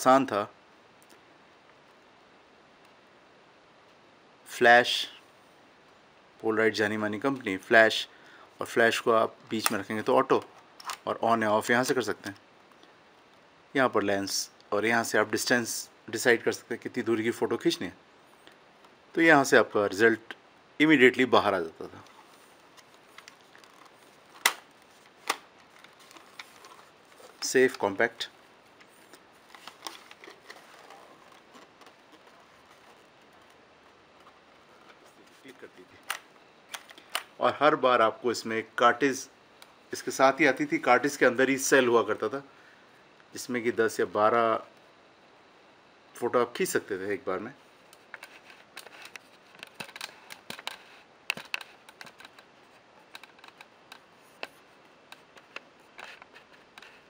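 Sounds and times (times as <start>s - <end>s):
low background hiss: 0.0s - 57.0s
camera handling clicks and rubs: 10.4s - 11.1s, 22.0s - 27.8s, 28.7s - 33.6s, 47.9s - 57.0s.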